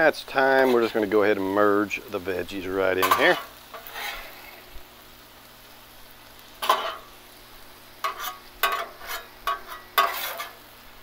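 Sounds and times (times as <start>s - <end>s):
food sizzling on griddle: 0.0s - 11.0s
metal spatulas scraping griddle: 0.4s - 1.1s, 3.0s - 4.6s, 6.6s - 7.1s, 8.0s - 10.6s.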